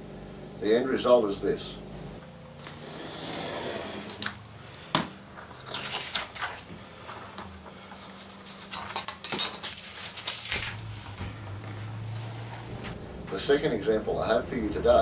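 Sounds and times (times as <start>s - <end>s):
craft knife scoring paper: 2.6s - 4.4s
paper rustling and sliding: 2.6s - 4.4s, 5.3s - 13.0s.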